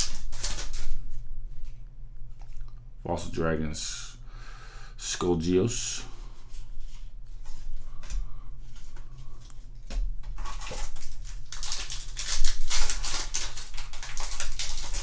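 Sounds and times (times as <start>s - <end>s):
foil wrapper tearing and crinkling: 0.0s - 1.1s, 10.3s - 15.0s
cards rustling and clicking: 0.0s - 2.6s, 6.5s - 15.0s.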